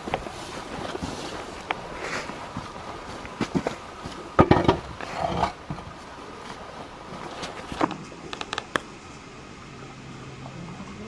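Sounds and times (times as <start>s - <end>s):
crisp clicks: 8.3s - 8.9s.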